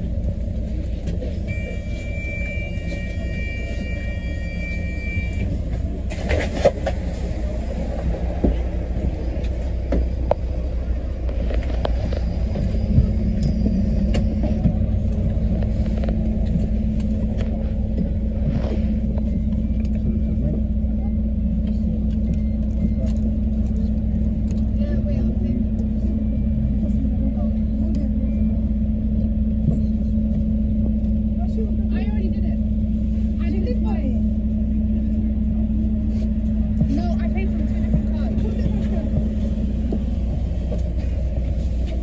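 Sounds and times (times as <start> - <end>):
bus engine and road rumble: 0.0 - 42.0
high-pitched tone: 1.5 - 5.6.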